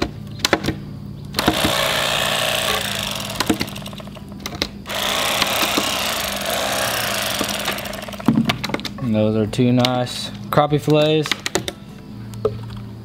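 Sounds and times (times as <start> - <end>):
electric knife motor buzzing: 1.4 - 8.6.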